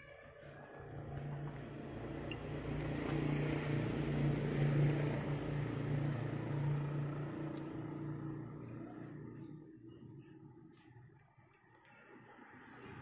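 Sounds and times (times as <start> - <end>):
motor engine humming: 0.8 - 10.7.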